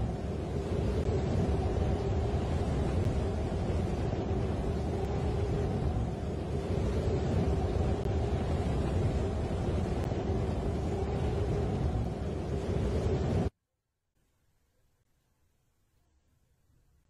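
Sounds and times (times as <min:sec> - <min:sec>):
steady low rumbling drone: 0:00.0 - 0:13.5.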